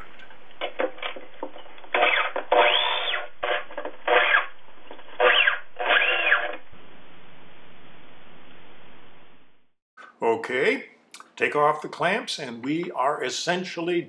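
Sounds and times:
power drill driving screws into wood: 1.9s - 4.5s, 5.2s - 6.6s.

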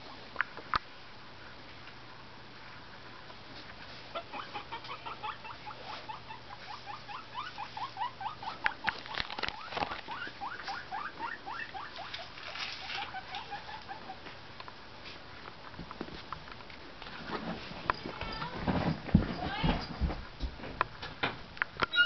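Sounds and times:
small animal squeaking: 4.2s - 14.2s.

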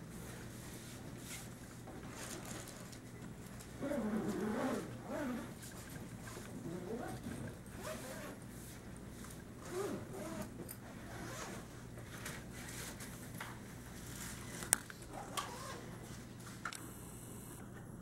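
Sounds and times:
rustling handling noise: 0.2s - 10.4s.

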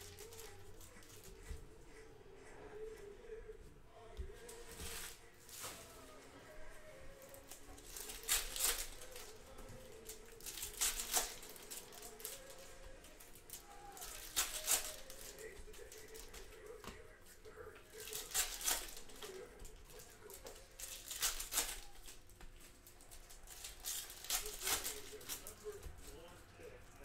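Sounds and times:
foil packs torn and crinkled: 7.2s - 16.8s, 17.8s - 25.8s.

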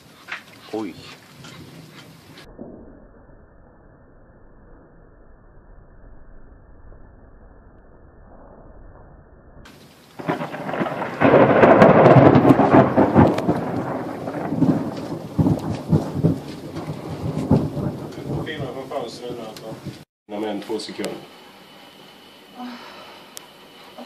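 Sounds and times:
thunder clap and rolling rumble: 9.6s - 20.0s.

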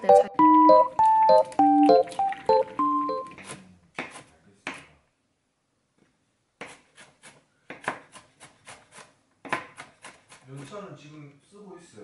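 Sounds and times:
knife chopping on wooden board: 3.4s - 4.9s, 6.6s - 10.4s.

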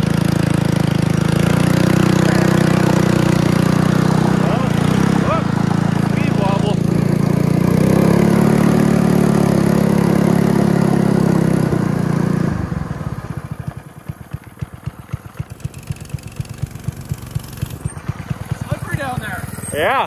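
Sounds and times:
small gas engine running: 0.0s - 20.0s.

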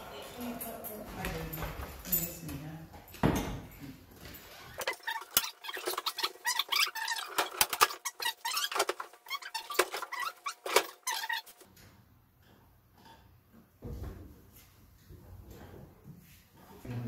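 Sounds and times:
stove insert squeaking and scraping: 4.8s - 11.6s.

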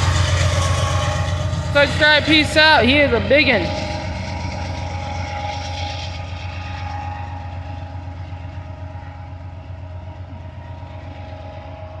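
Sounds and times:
locomotive engine rumble: 0.0s - 12.0s.

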